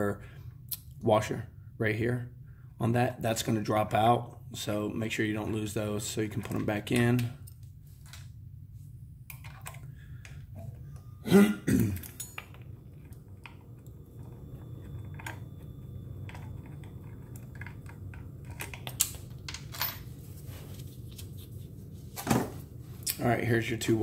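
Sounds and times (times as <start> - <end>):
low steady hum: 0.0 - 24.0
small metal clicks and clinks: 12.0 - 12.7.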